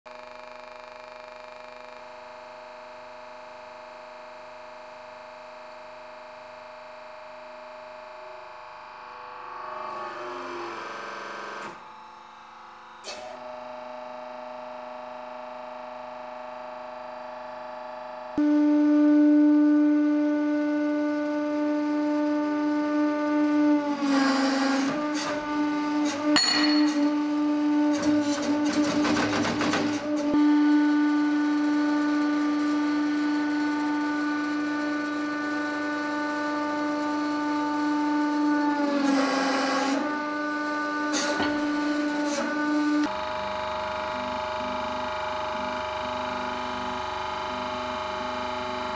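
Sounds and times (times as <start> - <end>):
hydraulic pump motor humming: 9.7 - 17.0, 19.9 - 48.9.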